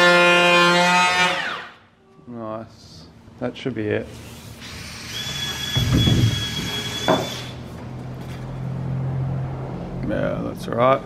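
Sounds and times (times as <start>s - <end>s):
power tool high whine: 4.6s - 7.6s.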